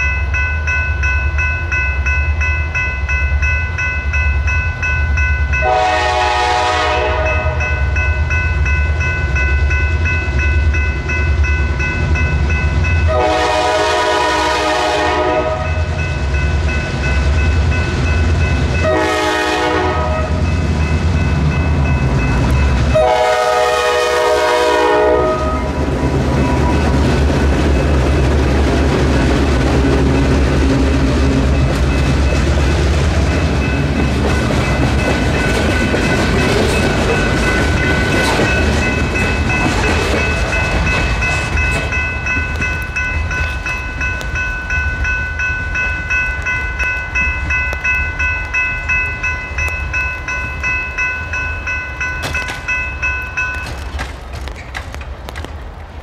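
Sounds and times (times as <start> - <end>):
crossing bell ringing: 0.0 - 54.2
diesel locomotive engines running: 0.0 - 56.0
train horn: 5.6 - 7.7, 13.1 - 15.8, 18.8 - 20.4, 22.9 - 25.8.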